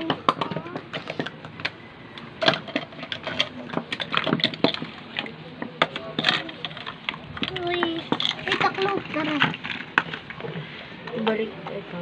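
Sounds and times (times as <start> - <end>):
plastic toy dishes clattering: 0.0 - 1.8, 2.4 - 11.4.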